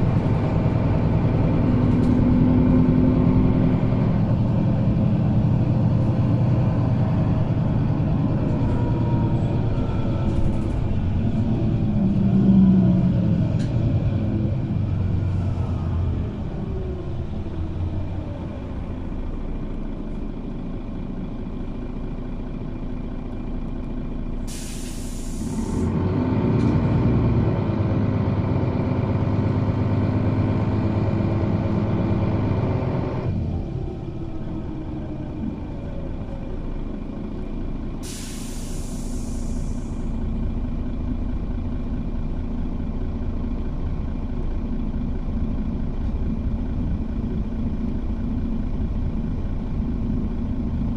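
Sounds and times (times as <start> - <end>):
bus engine running: 0.0 - 50.9
air brake hiss: 24.4 - 25.9, 38.0 - 40.2.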